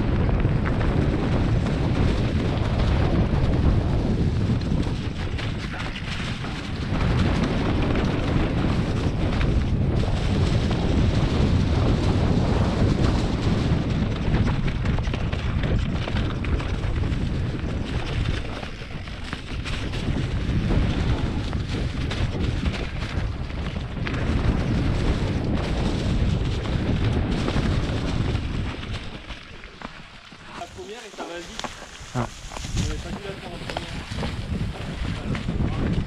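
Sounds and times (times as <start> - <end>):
bike rattling: 0.0 - 36.0
wind buffeting microphone: 0.0 - 36.0
tyres rolling through dry leaves: 25.0 - 35.1.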